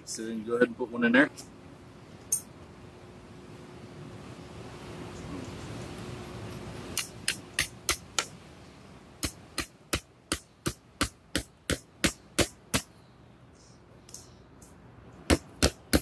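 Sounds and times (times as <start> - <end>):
hammer striking tent stake: 7.0 - 8.3, 9.2 - 12.9, 15.3 - 16.0.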